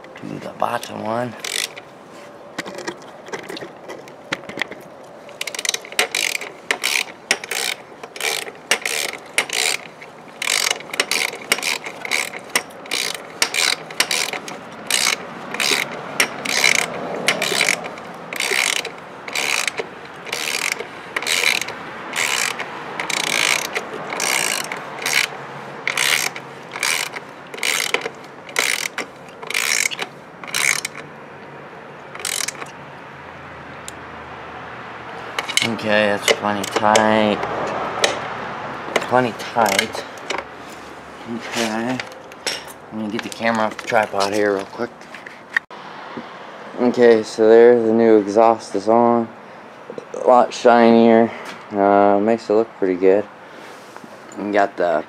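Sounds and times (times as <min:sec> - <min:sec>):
socket ratchet clicking: 0:01.4 - 0:01.8, 0:04.3 - 0:31.1, 0:32.1 - 0:32.8, 0:35.3 - 0:38.3.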